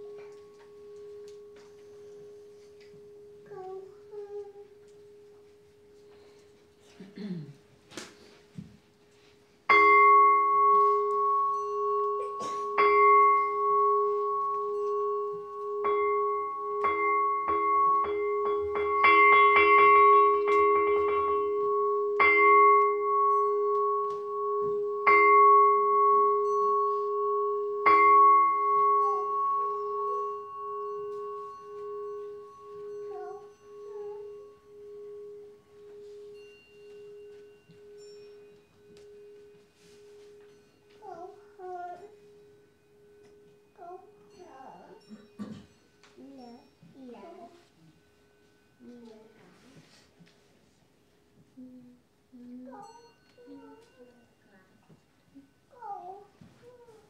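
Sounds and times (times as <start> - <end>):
bowl bell ringing: 0.0 - 6.9, 9.1 - 57.0.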